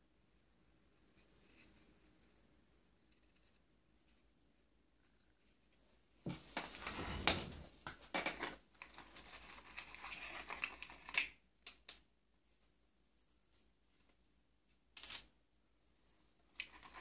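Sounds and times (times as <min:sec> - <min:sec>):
plastic parts and wires rustling: 0:05.0 - 0:12.0.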